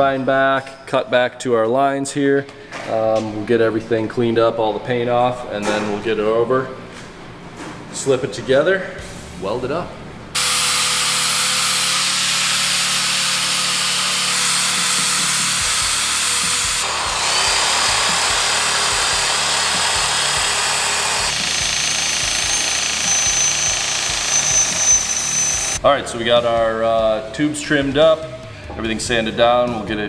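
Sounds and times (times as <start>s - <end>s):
angle grinder grinding steel: 10.4s - 25.8s
bench grinder wheel on metal: 10.4s - 25.8s.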